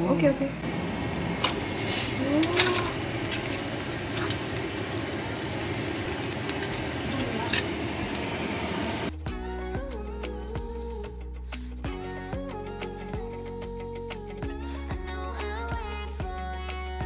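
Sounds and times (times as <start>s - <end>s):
music: 9.1s - 17.0s.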